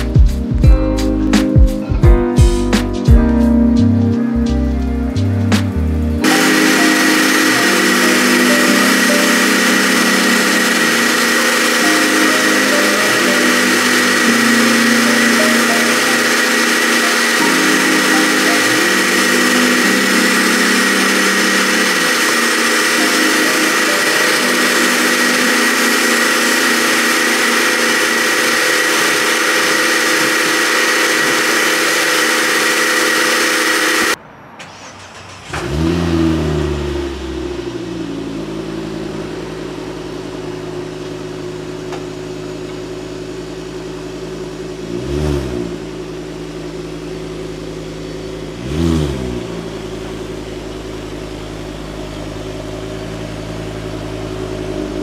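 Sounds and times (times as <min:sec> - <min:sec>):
car engine starting and idling: 0:00.0 - 0:55.0
pressure washer spraying: 0:05.8 - 0:36.0.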